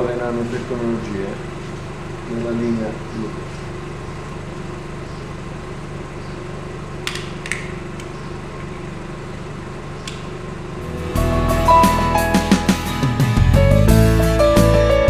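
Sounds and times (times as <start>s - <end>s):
steady mechanical hum: 0.0s - 10.9s
music: 10.8s - 15.0s.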